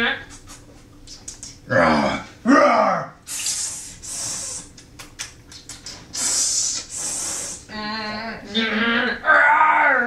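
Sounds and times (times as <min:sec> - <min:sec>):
person hissing: 0:03.3 - 0:04.8, 0:05.9 - 0:07.7.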